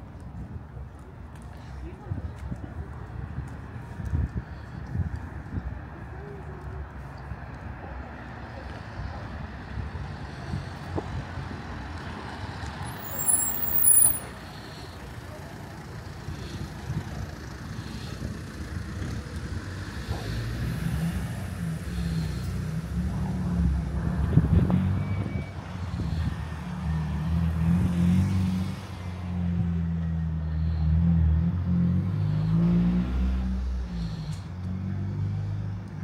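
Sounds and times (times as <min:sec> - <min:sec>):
street traffic rumble: 0:00.0 - 0:36.0
high squeal: 0:12.9 - 0:14.3.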